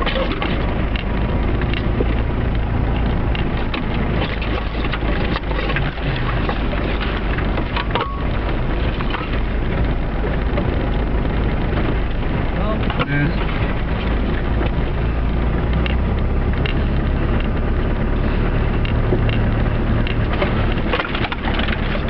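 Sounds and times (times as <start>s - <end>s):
small clicks and knocks: 0.0s - 12.1s, 15.6s - 17.7s, 18.7s - 22.0s
diesel engine running: 0.0s - 22.0s
tyres in snow: 0.0s - 22.0s.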